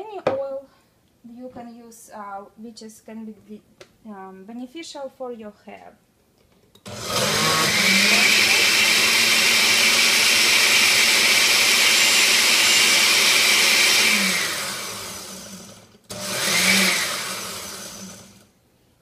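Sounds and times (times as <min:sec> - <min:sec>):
blender motor whine: 0:06.8 - 0:18.5.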